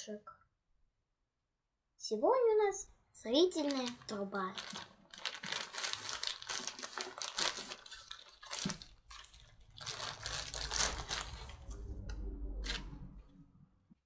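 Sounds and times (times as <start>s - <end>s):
plastic bag crinkling: 3.5s - 11.8s.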